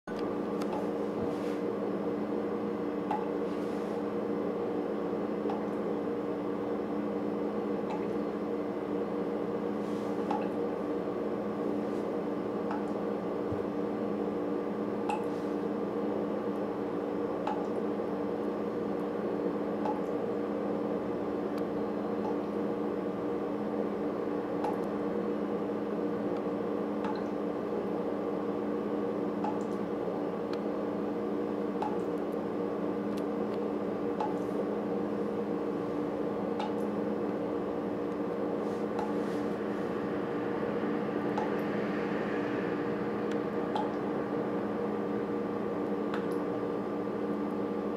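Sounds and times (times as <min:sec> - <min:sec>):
steady hum: 0:00.1 - 0:47.9
water dripping from faucet: 0:07.8 - 0:08.2, 0:17.5 - 0:17.8, 0:19.8 - 0:20.2, 0:27.0 - 0:27.4, 0:29.4 - 0:29.7.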